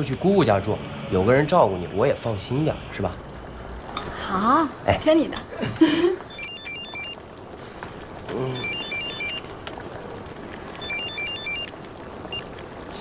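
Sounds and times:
phone ringtone beeping melody: 6.3 - 7.2, 8.6 - 9.4, 10.8 - 11.7.

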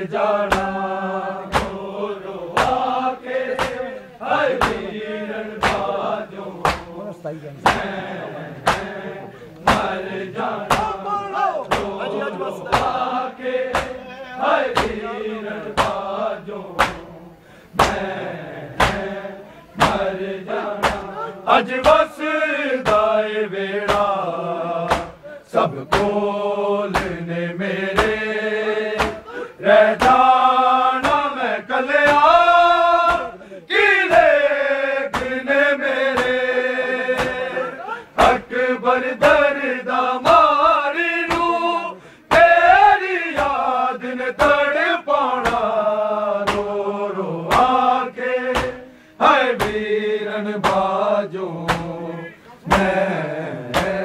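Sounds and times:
men chanting a lament: 0.0 - 54.0
hands slapping bare chests: 0.5 - 0.8, 1.5 - 1.9, 2.5 - 2.9, 3.5 - 3.9, 4.5 - 4.9, 5.6 - 6.0, 6.6 - 6.9, 7.6 - 8.0, 8.6 - 9.0, 9.6 - 10.0, 10.6 - 11.0, 11.6 - 12.0, 12.7 - 13.1, 13.7 - 14.0, 14.7 - 15.0, 15.8 - 16.1, 16.8 - 17.1, 17.8 - 18.2, 18.8 - 19.1, 19.8 - 20.1, 20.8 - 21.2, 21.8 - 22.1, 22.8 - 23.1, 23.9 - 24.2, 24.9 - 25.2, 25.9 - 26.2, 26.9 - 27.2, 27.9 - 28.2, 29.0 - 29.4, 30.0 - 30.3, 31.0 - 31.3, 32.0 - 32.3, 33.0 - 33.3, 34.1 - 34.3, 35.1 - 35.4, 36.1 - 36.4, 37.2 - 37.5, 41.2 - 41.5, 43.3 - 43.6, 44.4 - 44.6, 45.4 - 45.7, 46.4 - 46.8, 47.5 - 47.8, 48.5 - 48.8, 49.5 - 49.8, 50.6 - 50.9, 51.6 - 52.0, 52.7 - 53.0, 53.7 - 54.0.

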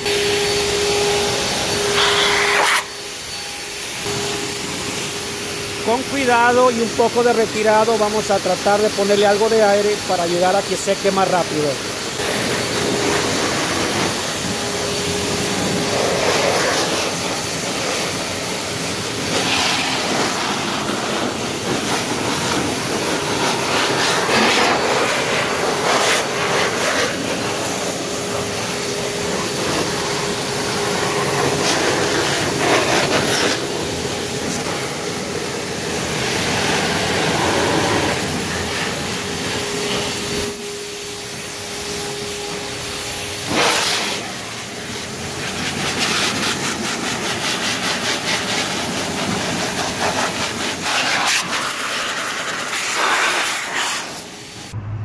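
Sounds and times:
air wand blowing air: 11.8 - 55.0.

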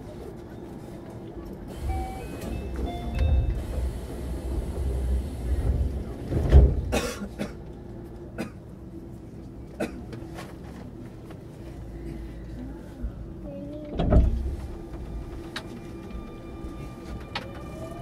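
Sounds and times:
low train rumble: 0.0 - 18.0
train doors shutting with hiss: 1.7 - 7.4.

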